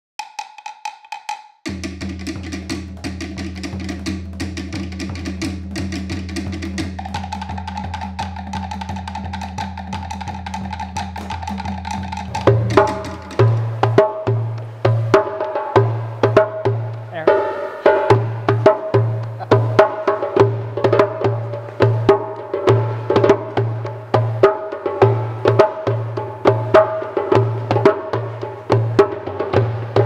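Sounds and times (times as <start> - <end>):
fast percussive beat: 0.2 - 30.0
higher held tone: 17.1 - 19.8.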